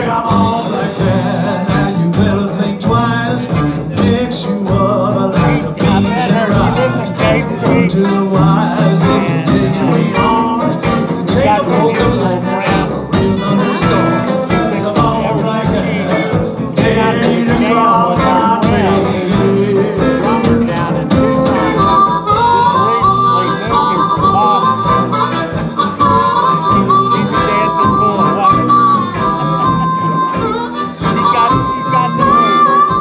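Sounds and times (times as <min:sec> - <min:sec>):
amplified harmonica: 0:00.0 - 0:33.0
live blues band: 0:00.0 - 0:33.0.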